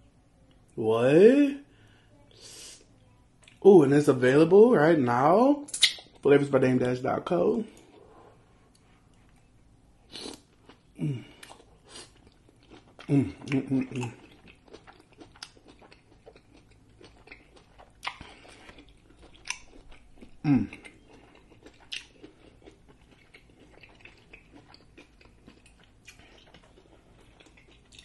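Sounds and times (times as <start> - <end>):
loud mouth smacks: 5.7 - 6.1
wet chewing sounds: 5.7 - 6.3, 7.7 - 28.0.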